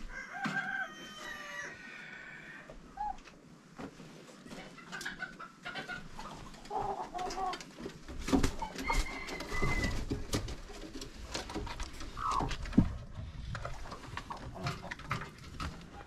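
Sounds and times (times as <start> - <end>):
chickens clucking: 2.6 - 16.0.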